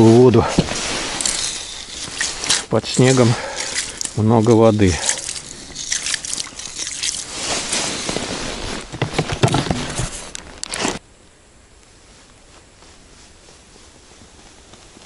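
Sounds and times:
boots crunching through snow: 7.2s - 9.2s.

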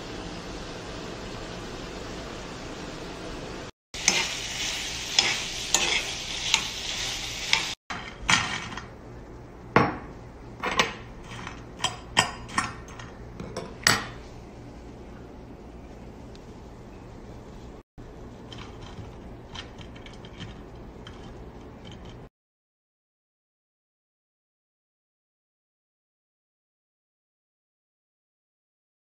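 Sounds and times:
food sizzling in oil: 0.0s - 8.9s
stirring in frying pan: 4.0s - 8.9s, 11.0s - 14.4s, 17.4s - 22.3s.

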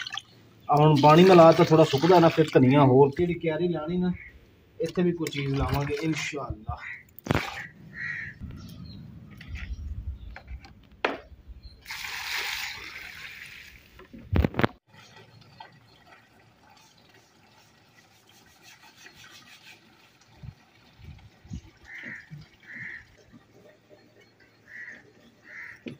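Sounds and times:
water splashing onto soil: 0.0s - 2.6s, 7.2s - 7.7s, 11.8s - 14.0s
faint water trickle: 14.9s - 25.8s.

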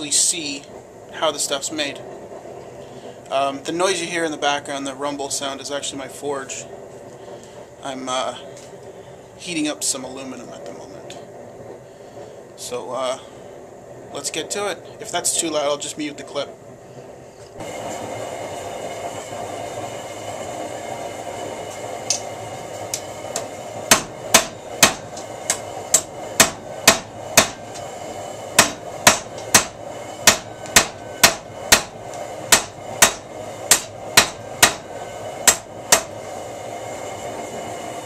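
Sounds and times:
forge rumble: 0.0s - 38.0s
hammer striking hot steel bar: 22.0s - 22.3s, 22.9s - 27.9s, 28.6s - 36.2s.

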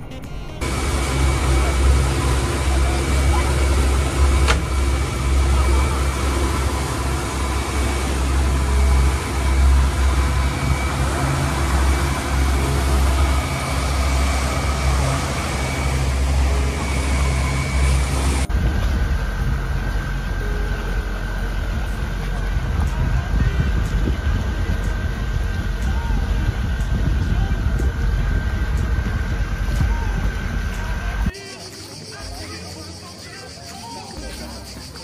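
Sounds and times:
outboard motors droning: 0.0s - 35.0s
wind rumble on microphone: 0.6s - 31.3s.

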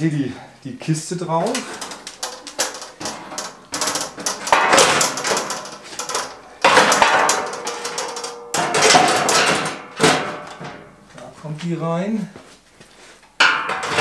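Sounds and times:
metal box clattering and scraping: 1.5s - 10.9s, 13.4s - 14.0s.

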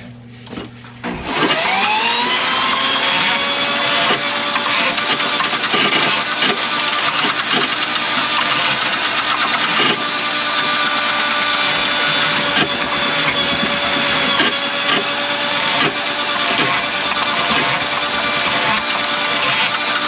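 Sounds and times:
drain-cleaning machine running: 0.0s - 20.0s
knocks and rattles: 2.6s - 20.0s.

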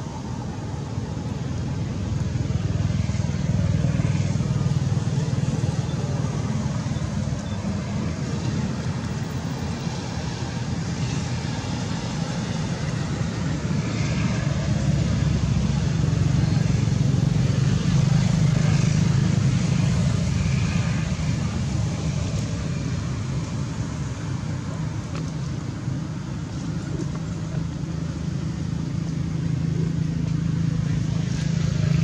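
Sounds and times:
low rumble background noise: 0.0s - 32.0s.

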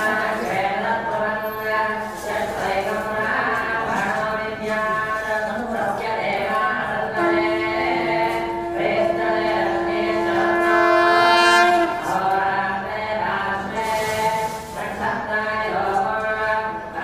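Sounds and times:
men chanting: 0.0s - 17.0s
conch shell blown: 7.1s - 12.2s.

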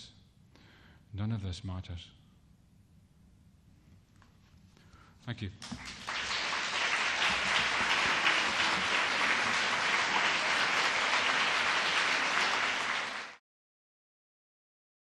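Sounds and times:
audience applauding: 5.6s - 13.4s.

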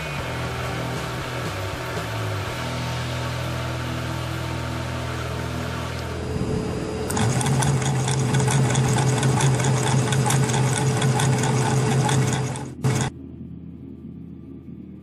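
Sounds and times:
low motor hum: 0.0s - 15.0s
small electric motor whirring: 5.7s - 13.1s.

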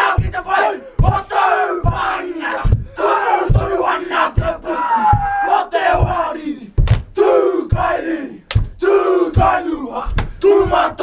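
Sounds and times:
heavy thumps: 0.0s - 11.0s
men chanting and shouting: 0.0s - 11.0s.

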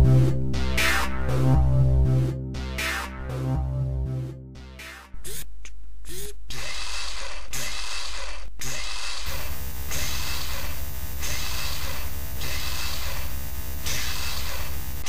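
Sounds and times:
mechanical whirring and ratcheting: 6.1s - 15.0s.

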